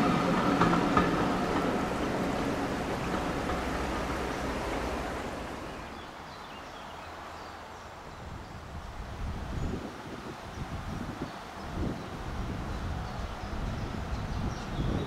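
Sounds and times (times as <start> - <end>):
train rumble: 0.0 - 6.2, 10.5 - 15.0.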